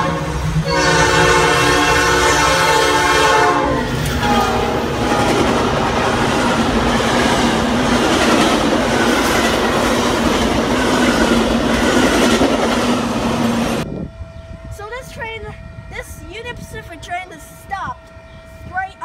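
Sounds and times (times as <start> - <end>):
train horn: 0.0 - 6.3, 13.8 - 16.9, 17.5 - 19.0
train wheels clattering on rails: 3.9 - 13.8.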